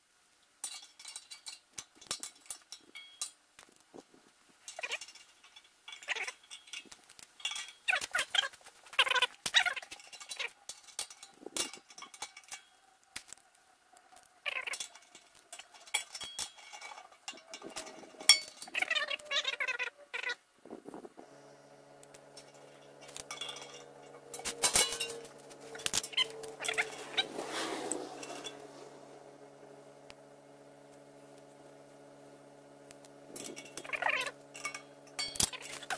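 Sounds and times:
metal fittings clinking on concrete: 0.6s - 13.4s, 14.2s - 19.9s, 21.4s - 35.9s
steady low hum: 8.7s - 35.9s.

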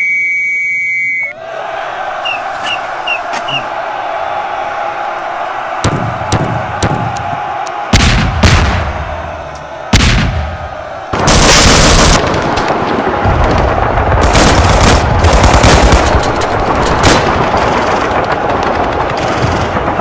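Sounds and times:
heavy gunfire burst: 9.9s - 20.0s
machine-gun and rifle fire: 11.1s - 20.0s.

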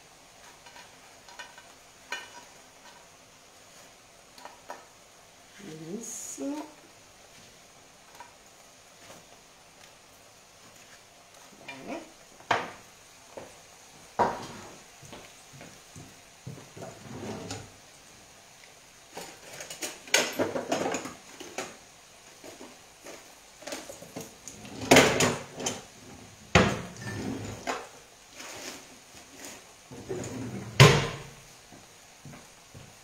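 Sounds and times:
pans and crockery clattering: 0.4s - 3.1s, 19.1s - 21.8s, 22.4s - 25.9s, 26.5s - 28.0s, 29.9s - 31.3s.

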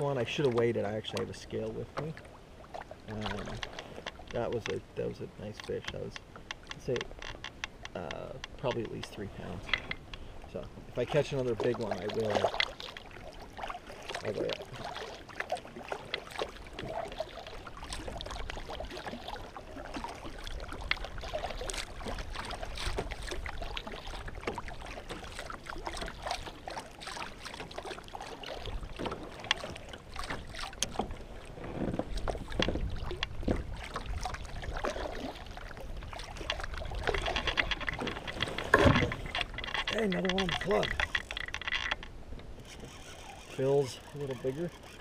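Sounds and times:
paddle dipping and splashing: 0.0s - 45.0s
water sloshing against hull: 0.0s - 45.0s
small knocks and ticks: 0.4s - 2.2s, 3.1s - 13.1s, 16.0s - 16.9s, 20.7s - 31.2s, 31.8s - 35.0s, 36.1s - 45.0s.

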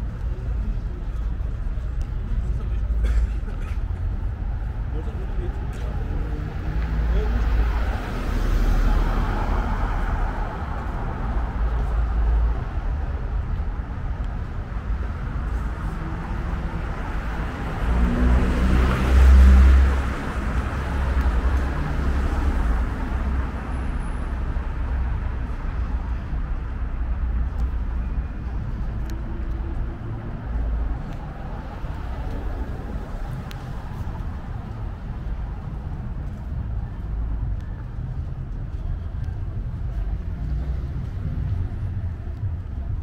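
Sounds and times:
traffic rumble: 0.0s - 43.0s
vehicle passing close by: 17.4s - 23.4s.

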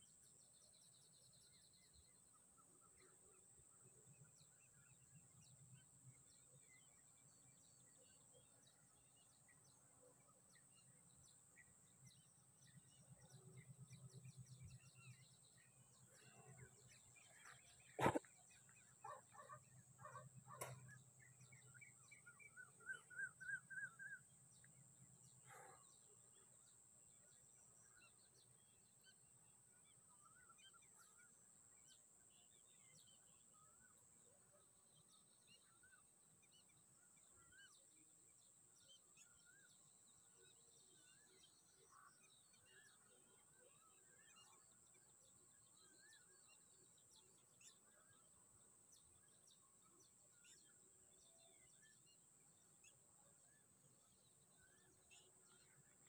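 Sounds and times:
rapid repeated bird chirps: 0.0s - 56.0s
bird chirps: 4.2s - 29.2s, 38.7s - 56.0s.

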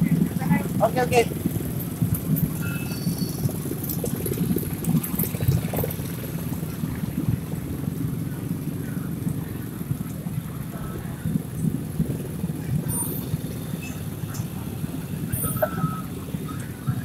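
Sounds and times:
motorcycles rumbling past: 0.0s - 17.0s.

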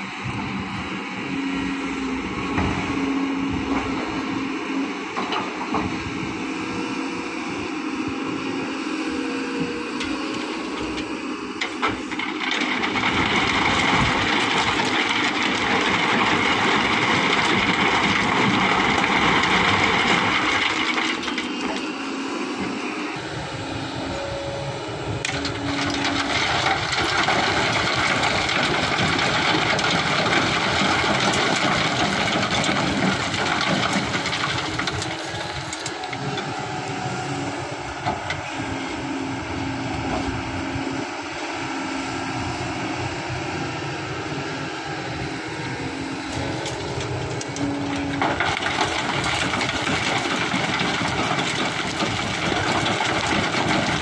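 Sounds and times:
excavator engine running: 0.0s - 54.0s
gravel pouring and rattling: 12.2s - 21.6s, 25.5s - 36.0s, 48.2s - 54.0s.

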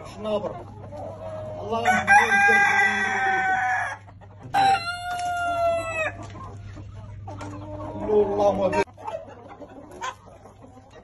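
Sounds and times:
roosters crowing: 1.2s - 6.4s.

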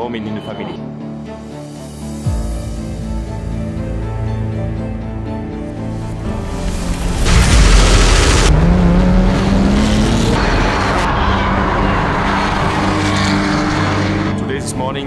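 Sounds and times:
loud rush of noise: 6.1s - 14.2s
racing car engine accelerating: 6.2s - 14.5s.

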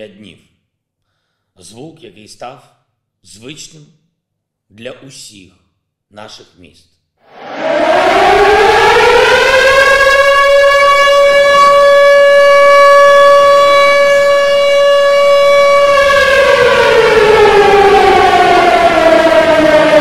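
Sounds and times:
air-raid siren wailing: 7.2s - 20.0s.

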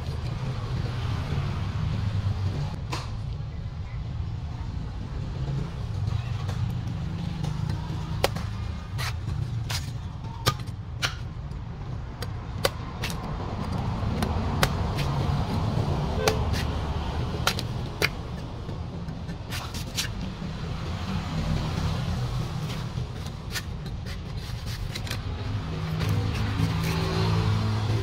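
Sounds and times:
knife chopping coconut husk: 12.2s - 20.2s.

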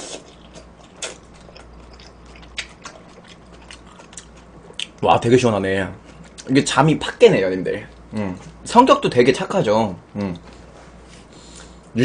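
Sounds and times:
slurping and chewing: 0.0s - 5.0s.

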